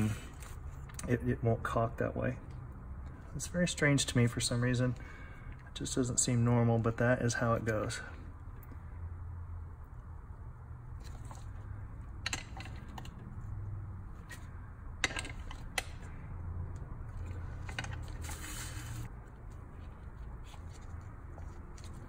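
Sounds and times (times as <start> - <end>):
low steady hum: 0.0 - 22.0
soft handling and rubbing: 17.0 - 22.0.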